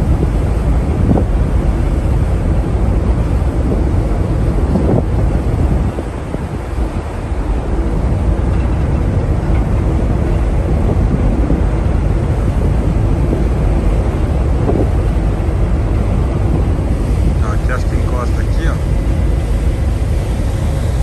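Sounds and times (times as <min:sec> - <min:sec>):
wind rushing across microphone: 0:00.0 - 0:21.0.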